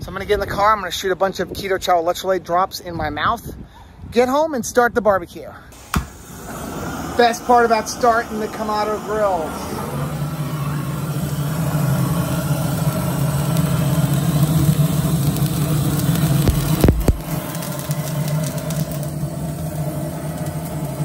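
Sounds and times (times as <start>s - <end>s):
propane torch flame blowing: 5.7s - 21.0s.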